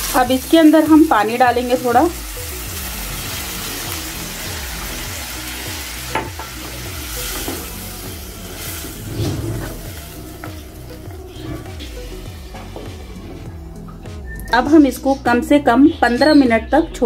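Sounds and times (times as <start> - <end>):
water sizzling in hot pan: 0.0 - 13.6.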